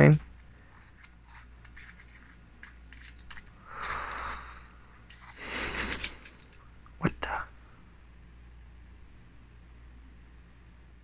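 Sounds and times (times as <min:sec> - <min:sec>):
rubbing scraping sounds: 0:00.6 - 0:04.4.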